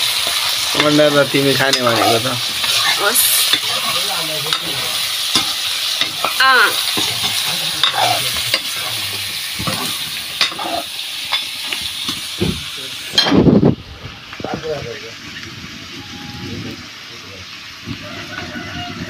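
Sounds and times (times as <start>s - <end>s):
chicken sizzling in oil: 0.0s - 19.0s
metal ladle scraping pan: 0.2s - 9.0s, 9.6s - 11.5s.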